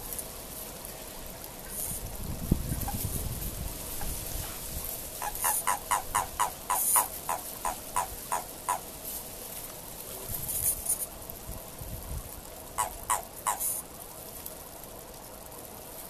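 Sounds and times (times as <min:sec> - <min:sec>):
toad croaking: 0:05.2 - 0:09.0, 0:12.7 - 0:13.8.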